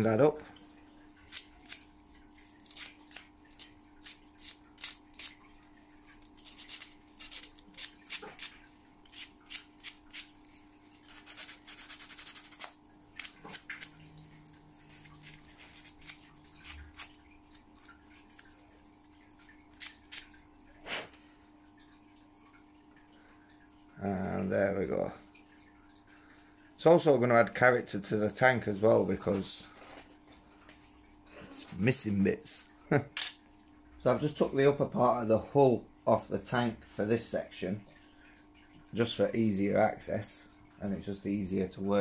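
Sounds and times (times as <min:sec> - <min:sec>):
sandpaper scratching plastic: 0:11.1 - 0:13.7.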